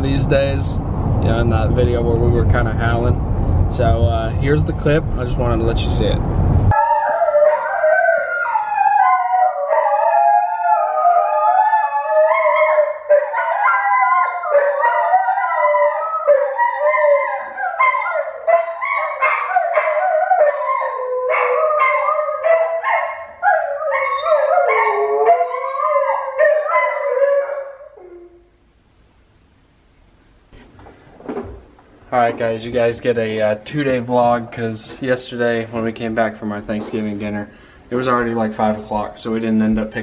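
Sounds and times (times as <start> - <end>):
dogs howling together: 6.7 - 28.4.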